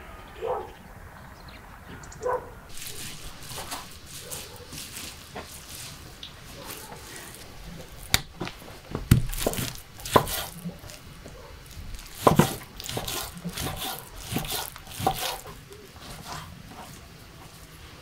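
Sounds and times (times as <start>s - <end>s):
knife cutting meat on wooden board: 9.1s - 11.0s, 12.0s - 15.6s.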